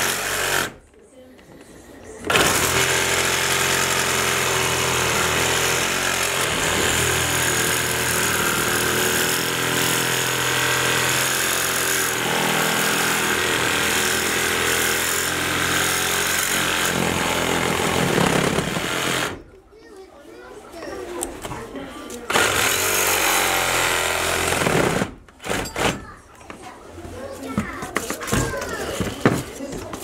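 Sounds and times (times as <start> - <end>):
power tool cutting wood: 0.0 - 0.8, 2.3 - 19.4, 22.3 - 25.8.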